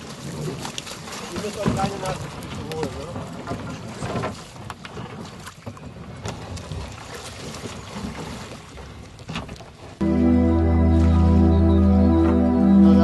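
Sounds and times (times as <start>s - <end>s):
water splashing around boat: 0.0s - 10.0s
man wading in water: 0.0s - 12.6s.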